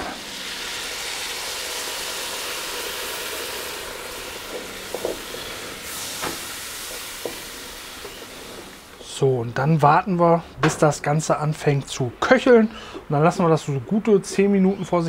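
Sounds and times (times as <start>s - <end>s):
liquid sizzling in hot pot: 0.0s - 8.9s.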